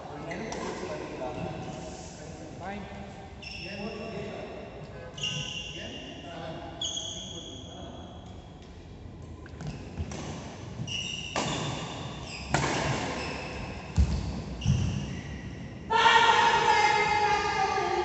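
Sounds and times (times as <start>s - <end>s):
sneakers squeaking on court: 9.6s - 15.7s
racket striking shuttlecock: 11.3s - 13.2s.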